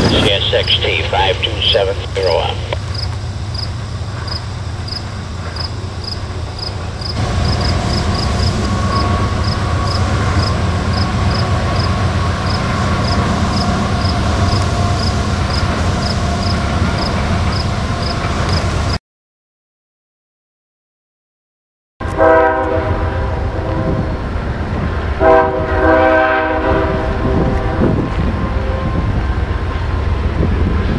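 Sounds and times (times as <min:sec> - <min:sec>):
freight train passing: 0:00.0 - 0:19.0, 0:22.0 - 0:30.9
cricket chirping: 0:02.9 - 0:11.9.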